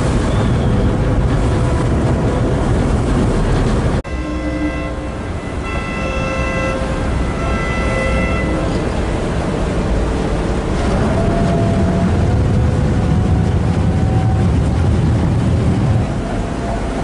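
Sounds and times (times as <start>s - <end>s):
ferry engines rumbling: 0.0s - 17.0s
water wash: 0.0s - 17.0s
wind on microphone: 0.0s - 17.0s
ship's horn: 4.0s - 17.0s.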